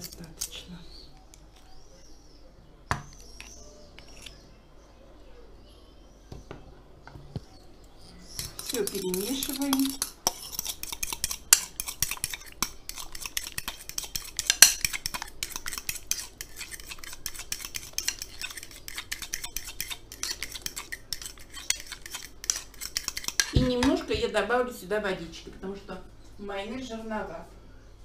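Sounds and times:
fork scraping a ceramic bowl: 3.4 - 4.4, 8.1 - 23.9
fork knocking on bowl: 21.2 - 24.2.

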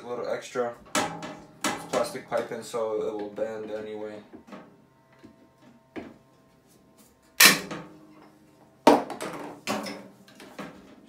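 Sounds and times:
pipe cutter snapping through tubing: 7.4 - 7.7.

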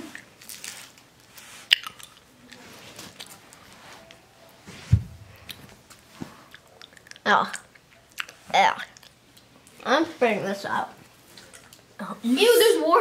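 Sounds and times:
candy wrappers crinkling: 0.0 - 3.7
dull thump: 4.8 - 5.3.

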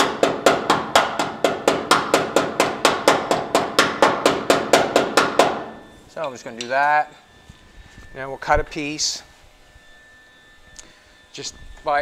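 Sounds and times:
hammer striking sheet steel: 0.0 - 5.9.

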